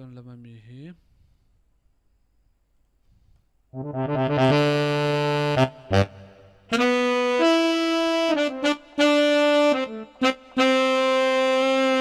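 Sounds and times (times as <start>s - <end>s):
synthesizer saxophone melody: 3.8s - 12.0s.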